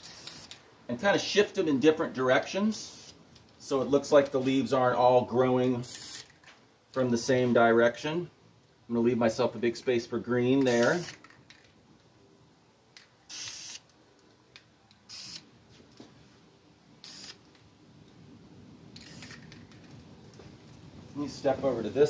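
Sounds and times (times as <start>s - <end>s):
spray paint can hissing: 0.0s - 0.6s, 2.8s - 3.2s, 5.8s - 6.3s, 10.6s - 11.2s, 13.3s - 13.9s, 15.0s - 15.5s, 17.0s - 17.4s, 19.0s - 19.6s.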